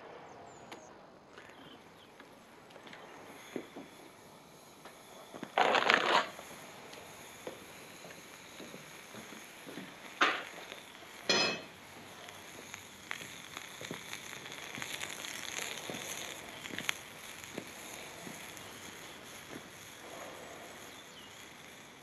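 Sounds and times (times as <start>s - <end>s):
furnace burner hissing: 0.0s - 22.0s
crackling and ticking metal: 0.7s - 22.0s
sharp cracks: 4.6s - 22.0s.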